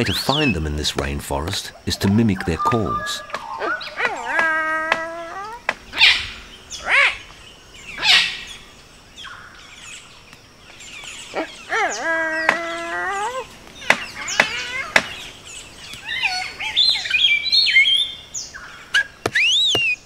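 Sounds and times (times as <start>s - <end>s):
man whistling bird calls: 19.0s - 20.0s.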